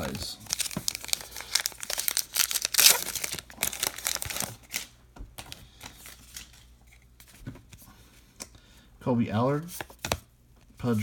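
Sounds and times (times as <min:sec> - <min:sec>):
wrapper crinkling and tearing: 0:00.0 - 0:04.9.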